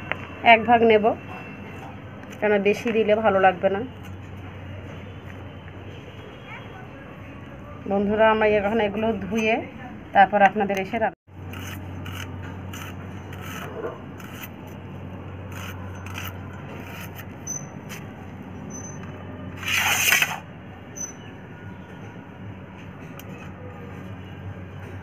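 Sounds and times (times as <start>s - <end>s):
blade scraping through onion: 11.4s - 14.8s, 15.4s - 18.0s, 19.6s - 20.4s.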